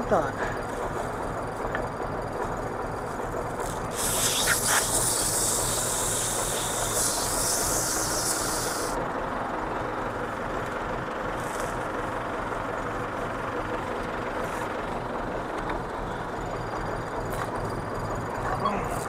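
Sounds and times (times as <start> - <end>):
tractor running: 0.0 - 19.0
loud hiss: 3.9 - 9.0.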